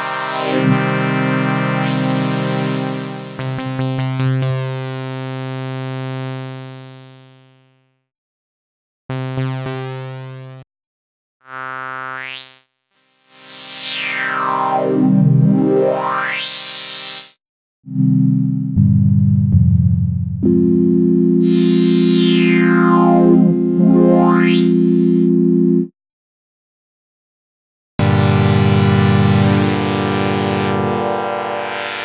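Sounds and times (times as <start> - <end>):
bright synthesizer sweep: 13.5 - 16.8, 21.4 - 25.3
low held synthesizer note: 18.0 - 25.9, 28.0 - 32.0
short synthesizer notes: 21.4 - 25.8.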